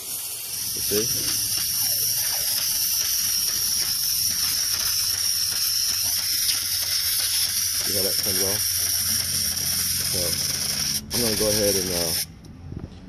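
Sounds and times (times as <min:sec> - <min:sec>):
aerosol can spraying hiss: 0:00.0 - 0:12.3.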